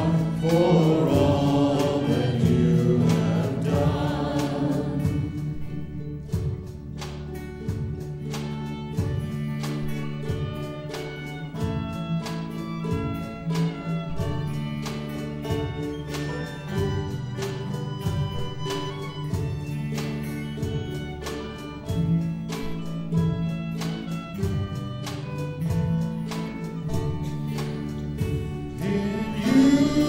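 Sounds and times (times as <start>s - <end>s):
congregation singing: 0.0s - 6.6s, 28.2s - 30.0s
band playing chords over a beat: 0.0s - 30.0s.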